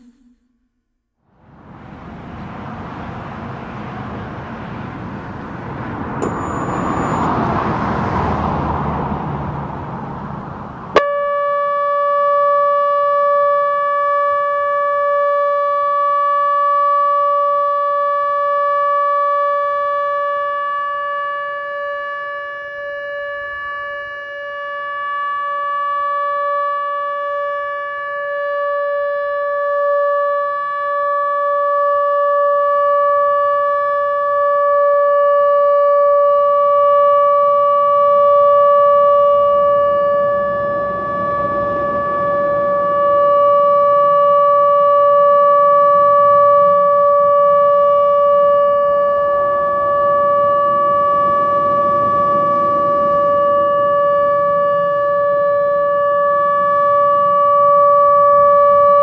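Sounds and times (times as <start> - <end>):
steady siren tone: 0.0 - 59.0
siren switch click: 11.0 - 11.2.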